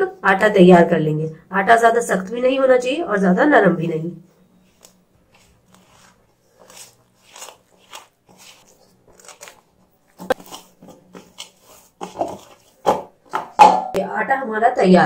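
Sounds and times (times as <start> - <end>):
dough squishing against metal bowl: 4.6 - 13.6.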